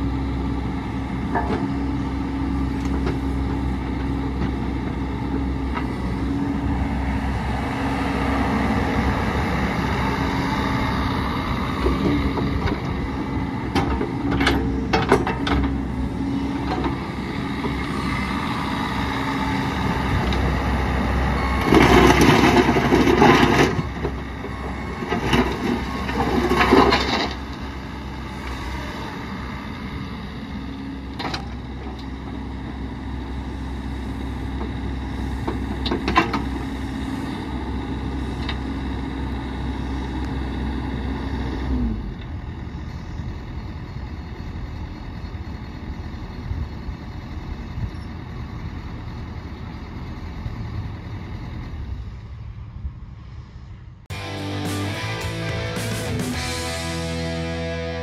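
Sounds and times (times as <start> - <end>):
excavator diesel engine running: 0.0 - 58.0
rushing clattering noise: 54.1 - 58.0.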